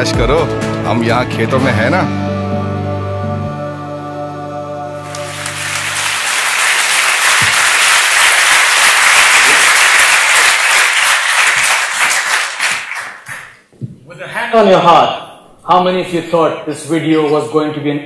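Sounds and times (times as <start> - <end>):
audience applauding: 5.0 - 13.7.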